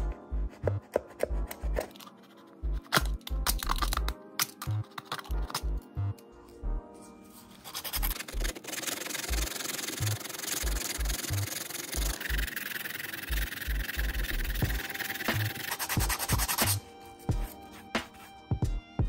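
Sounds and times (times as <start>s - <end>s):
sandpaper rubbing plastic: 7.5s - 16.8s, 17.4s - 18.4s.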